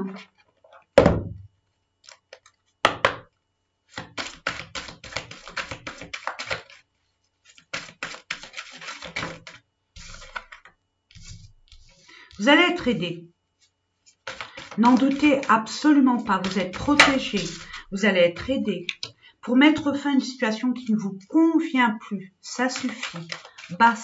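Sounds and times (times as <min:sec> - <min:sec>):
cards shuffling clicks: 0:04.0 - 0:06.8, 0:07.5 - 0:11.9, 0:14.1 - 0:15.5, 0:16.2 - 0:17.9, 0:22.8 - 0:23.8
card rustling on table: 0:04.0 - 0:12.4, 0:13.6 - 0:19.1, 0:22.6 - 0:24.0.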